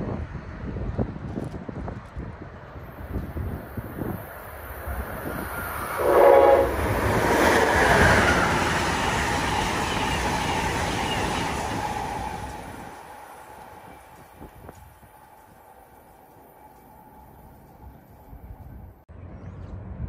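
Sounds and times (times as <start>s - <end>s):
train passing by: 1.7s - 20.0s
train horn blast: 5.9s - 7.7s.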